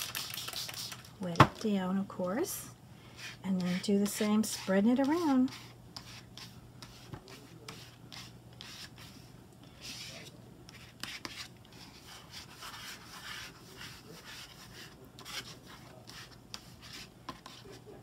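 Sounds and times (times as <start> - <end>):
plastic card scraping wet paper: 0.0 - 1.1.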